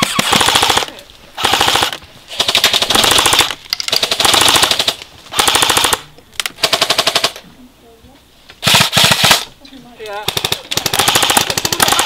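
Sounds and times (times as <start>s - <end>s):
airsoft rifles firing bursts: 0.0s - 6.0s, 6.6s - 7.4s, 8.6s - 9.5s, 10.2s - 12.0s.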